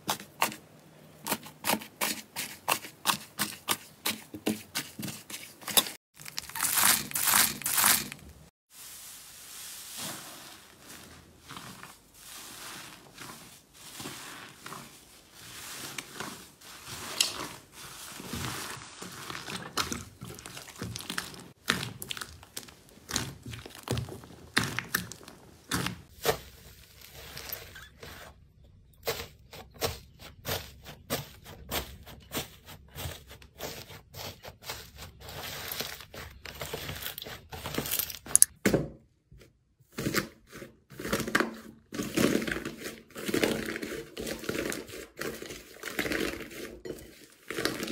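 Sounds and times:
slime squelching and popping: 0:19.1 - 0:26.1
dried slime crust cracking: 0:20.3 - 0:25.8.

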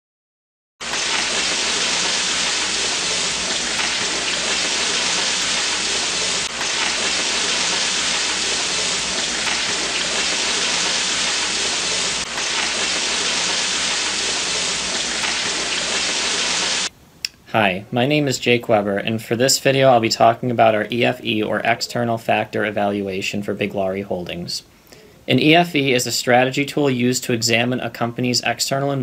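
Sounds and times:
burger patties sizzling on a grill: 0:00.8 - 0:16.9.

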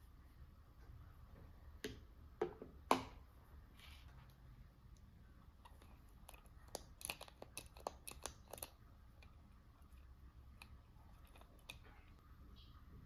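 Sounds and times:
small objects clicking and snipping: 0:05.7 - 0:09.3.

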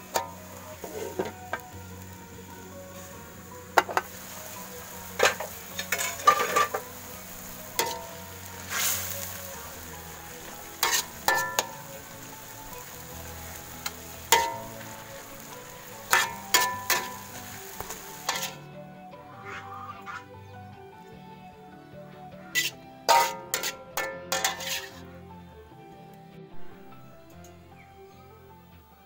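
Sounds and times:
metal spatula scraping a pan: 0:00.0 - 0:01.7, 0:03.7 - 0:11.9, 0:13.8 - 0:18.7, 0:22.5 - 0:25.1
greens sizzling in a wok: 0:00.0 - 0:18.8, 0:22.6 - 0:25.0.

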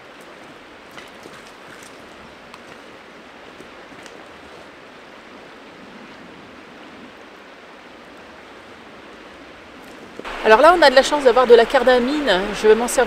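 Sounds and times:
river flowing over rocks: 0:00.0 - 0:13.0.

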